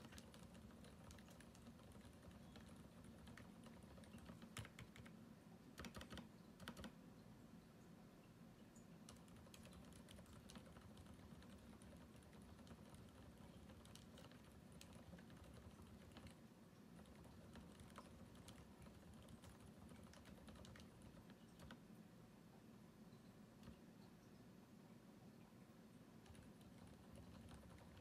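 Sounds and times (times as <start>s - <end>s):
dampened mechanical keyboard typing: 0.0s - 5.2s, 5.8s - 7.0s, 9.1s - 21.8s, 26.2s - 28.0s.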